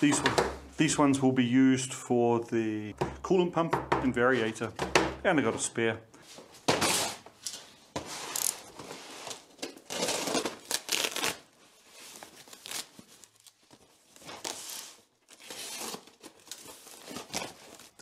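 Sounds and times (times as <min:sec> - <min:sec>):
cardboard ripping and crinkling: 0:08.2 - 0:18.0.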